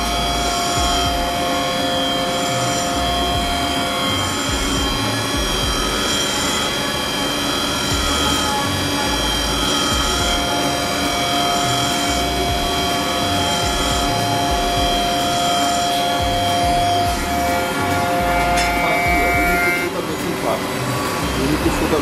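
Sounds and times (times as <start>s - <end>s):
low mechanical rumble: 0.0s - 6.1s, 7.9s - 15.3s, 16.2s - 19.6s
engraving machine whining: 0.0s - 22.0s.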